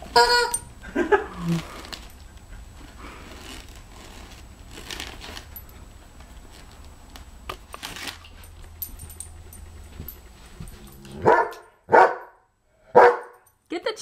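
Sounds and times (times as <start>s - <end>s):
wrapping paper rustling: 3.1s - 5.5s, 6.5s - 8.4s.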